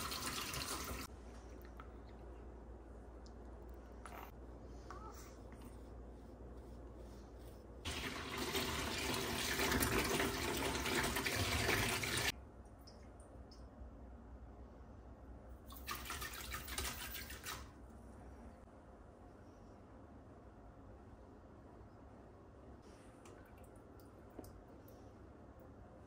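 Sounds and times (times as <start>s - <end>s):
tap running water into sink: 0.0s - 1.0s, 7.9s - 12.3s.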